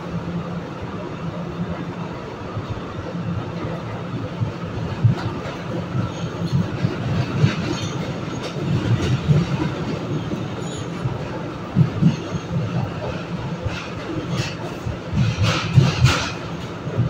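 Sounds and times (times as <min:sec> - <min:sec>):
train wheels rumbling on rails: 0:00.0 - 0:17.0
clacks over rail joints: 0:03.6 - 0:17.0.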